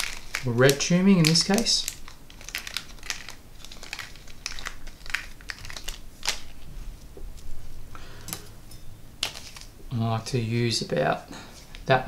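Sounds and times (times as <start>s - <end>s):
plastic packet crinkling: 0.0s - 6.7s, 9.2s - 9.8s.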